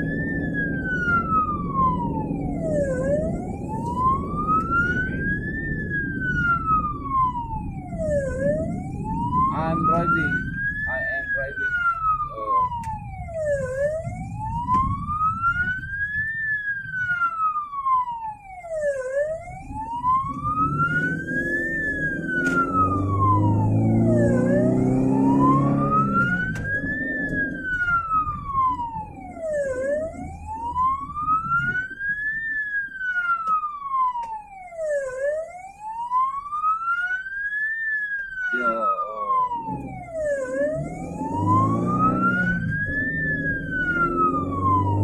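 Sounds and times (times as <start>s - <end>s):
ambulance siren wailing: 0.0s - 45.0s
vehicle engine speeding up: 19.5s - 31.9s, 38.8s - 45.0s.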